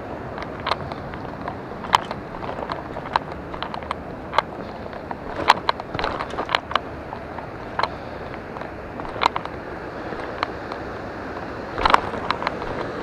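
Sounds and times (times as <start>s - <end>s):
river rushing: 0.0s - 13.0s.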